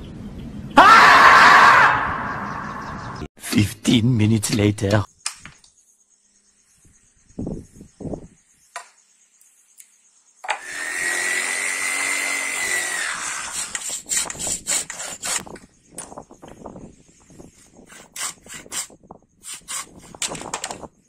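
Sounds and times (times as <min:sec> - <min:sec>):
jigsaw cutting wood: 0:10.5 - 0:15.4.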